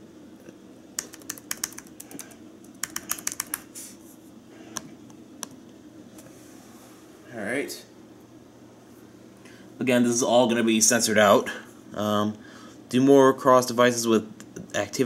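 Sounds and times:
laptop keyboard typing: 1.0 - 3.7.

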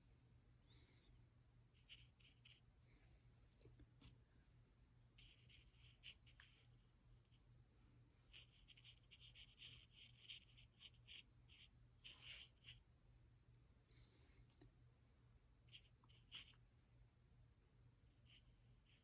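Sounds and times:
low steady hum: 0.0 - 19.0
pen nib scratching on paper: 1.7 - 2.7, 5.1 - 7.4, 8.3 - 12.9, 15.6 - 16.6, 18.2 - 19.0.

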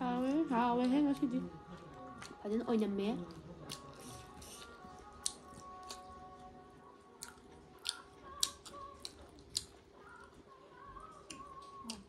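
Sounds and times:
people chewing: 0.0 - 12.0.

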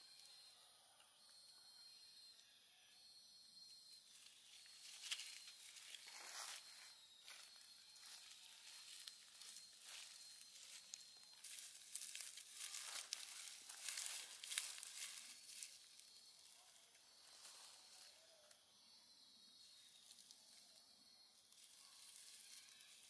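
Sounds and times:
dry leaves rustling and crackling: 4.2 - 16.2, 21.5 - 23.0.

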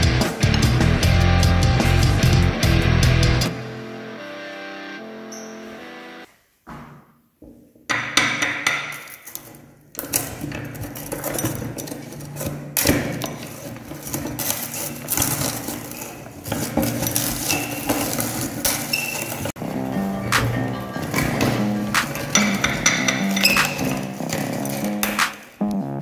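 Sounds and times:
candy cracking in a metal grinder: 10.1 - 19.6.

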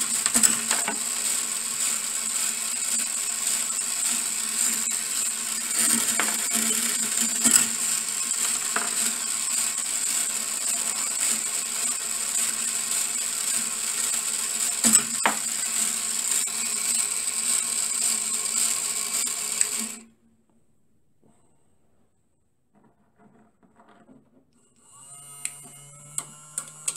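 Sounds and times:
balls clicking on rails: 0.0 - 16.5, 22.7 - 24.6
small motor whine: 0.0 - 20.0, 24.6 - 26.9
steel balls rolling on track: 0.0 - 20.0.

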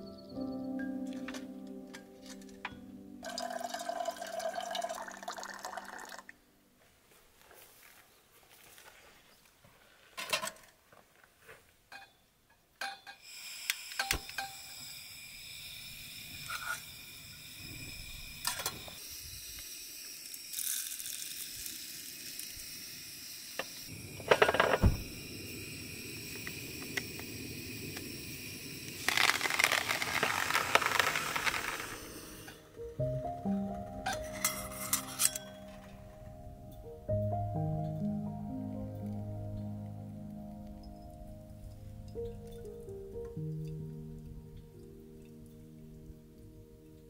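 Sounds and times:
kettle and cups clinking: 2.3 - 6.2, 11.9 - 13.3, 14.0 - 15.0, 23.6 - 25.0
gas stove burner hissing: 12.8 - 33.0.

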